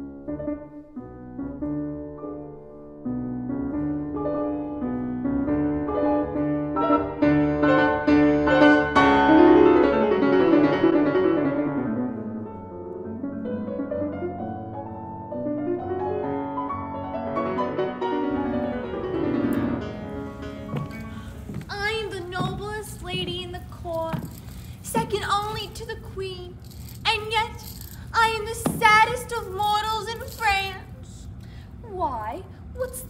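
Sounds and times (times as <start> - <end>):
piano music: 0.0 - 30.6.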